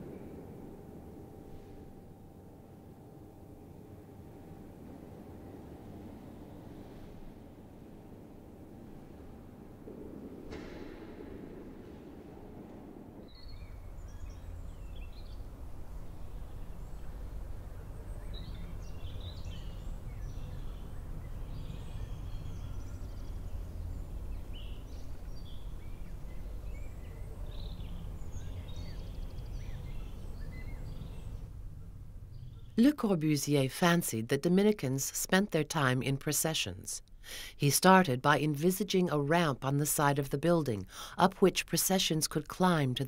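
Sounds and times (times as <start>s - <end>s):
steady low rumble: 0.0s - 34.9s
birds chirping: 13.2s - 32.8s.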